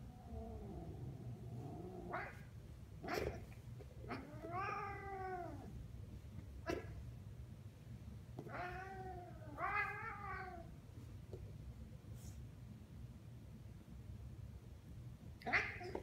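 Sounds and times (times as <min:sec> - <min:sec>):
cat growling: 0:00.0 - 0:05.8, 0:06.6 - 0:07.0, 0:08.4 - 0:10.7, 0:15.4 - 0:16.0
cat yowling: 0:04.1 - 0:05.7, 0:15.4 - 0:16.0.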